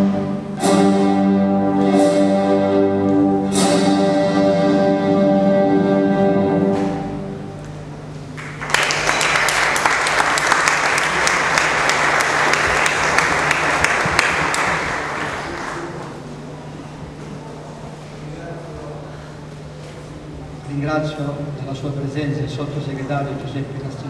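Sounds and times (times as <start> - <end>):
orchestral music chord: 0.0 - 8.0
audience applause: 8.4 - 16.2.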